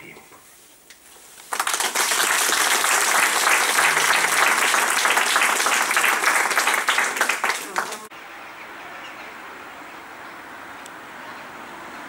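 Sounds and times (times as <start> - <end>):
audience applauding: 1.5 - 8.1.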